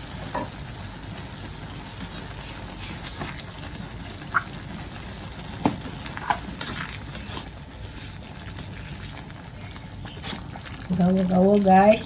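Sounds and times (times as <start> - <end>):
spatula stirring in a wok: 1.9 - 4.6.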